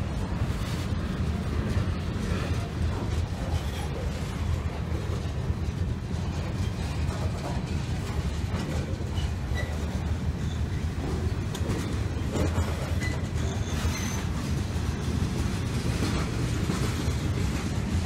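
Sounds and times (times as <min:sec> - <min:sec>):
freight train rumbling past: 0:00.0 - 0:18.0
faint wheel squeaks: 0:08.6 - 0:14.6.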